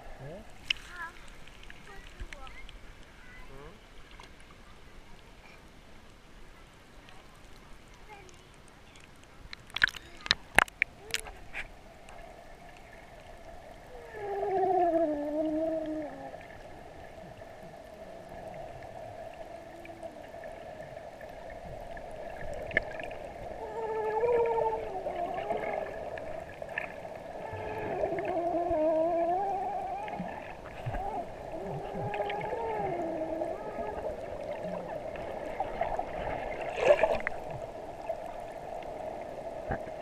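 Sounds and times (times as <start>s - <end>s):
muffled voices through water: 0.0s - 39.9s
muffled underwater hum: 9.9s - 40.0s.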